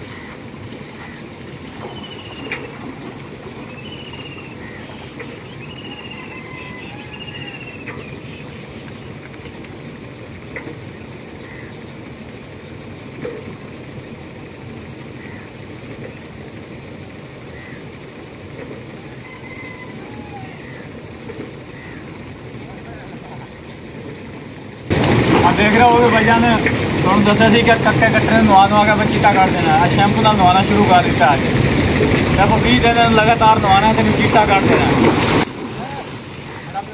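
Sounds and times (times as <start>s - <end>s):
water splashing and sloshing: 0.0s - 6.2s, 23.8s - 36.9s
small birds chirping: 1.0s - 2.8s, 3.6s - 10.1s.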